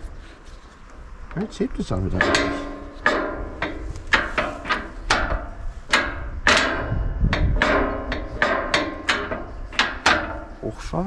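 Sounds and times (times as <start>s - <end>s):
hammer striking metal: 2.1s - 10.6s.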